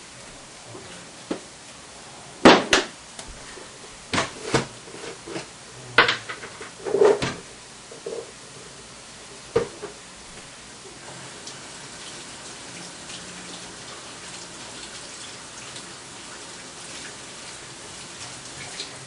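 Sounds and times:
tap running water into sink: 9.5 - 10.0, 11.0 - 19.0.

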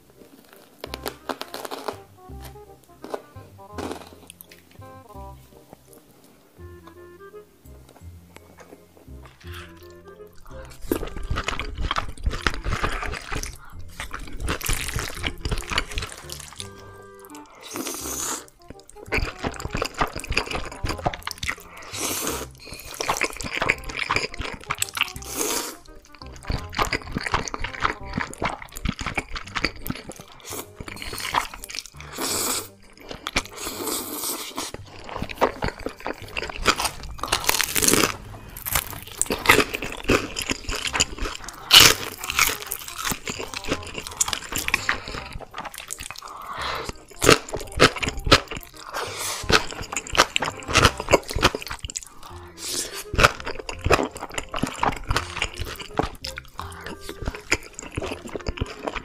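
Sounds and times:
crunchy chewing: 0.0 - 4.9, 8.3 - 59.0
background music: 0.0 - 59.0
slurping noodles: 8.7 - 59.0.

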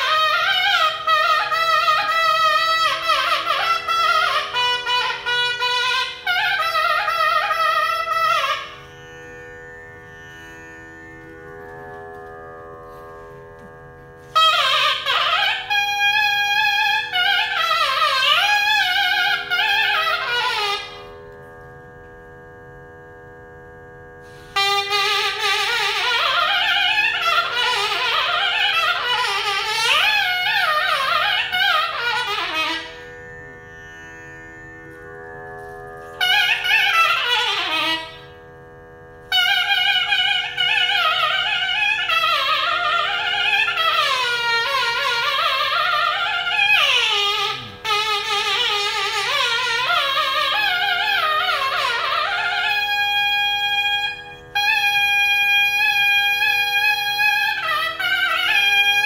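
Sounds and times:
reed pipe melody: 0.0 - 22.4, 24.2 - 59.0.

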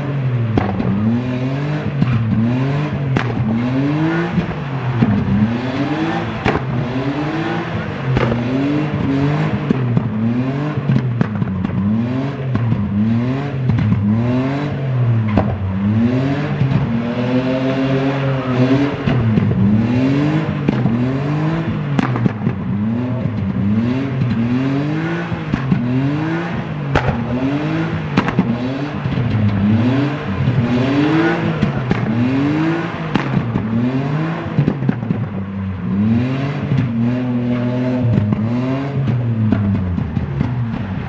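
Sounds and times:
car engine revving hard: 0.0 - 41.0
sharp cracks: 2.0 - 12.9, 19.0 - 35.4.

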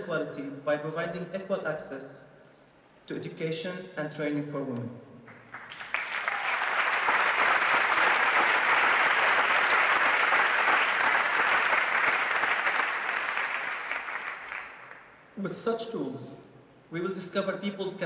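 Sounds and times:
audience applause: 5.3 - 15.1.

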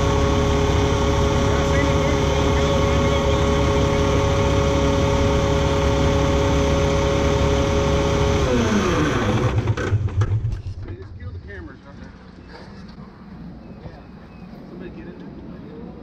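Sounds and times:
diesel truck engine running: 0.0 - 15.6.

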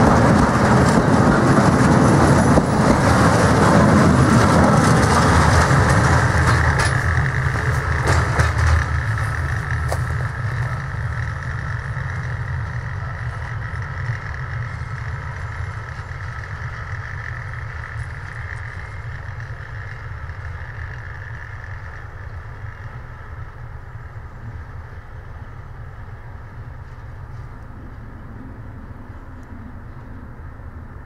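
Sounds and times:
freight train rumbling: 0.0 - 31.0.

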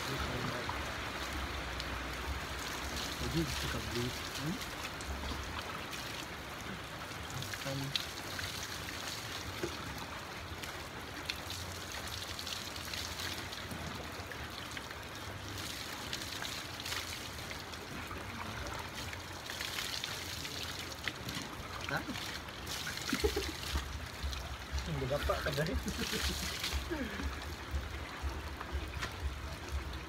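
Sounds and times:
water splashing onto concrete: 0.0 - 30.0.

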